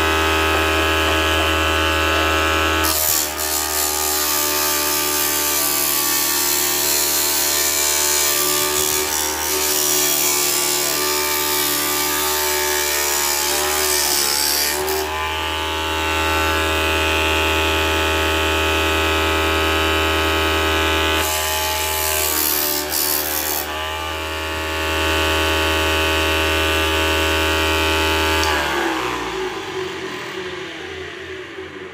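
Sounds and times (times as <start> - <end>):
disc sander motor whine: 0.0 - 2.8, 23.8 - 31.9
board sanding: 0.0 - 15.4.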